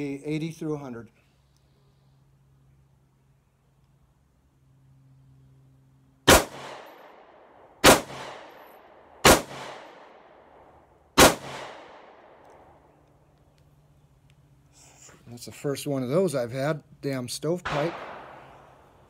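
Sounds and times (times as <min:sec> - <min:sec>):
pistol shots: 0:06.3 - 0:10.3, 0:11.2 - 0:12.5, 0:17.6 - 0:19.0.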